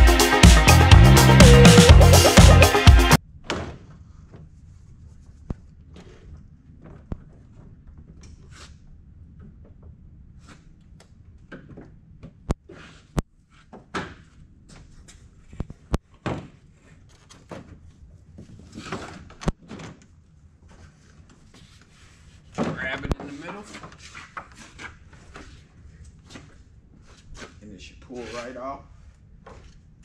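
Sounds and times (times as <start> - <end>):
plastic scraping and rustling: 12.6 - 28.6.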